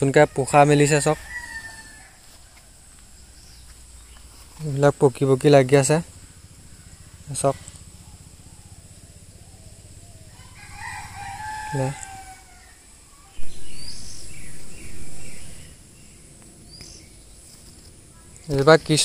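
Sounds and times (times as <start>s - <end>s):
rooster crowing: 0.1s - 2.9s, 9.4s - 15.8s.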